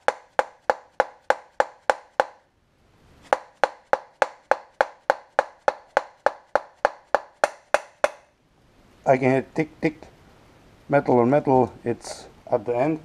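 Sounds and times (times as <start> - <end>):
rubber hammer tapping bearing: 0.0 - 2.5, 3.3 - 8.3.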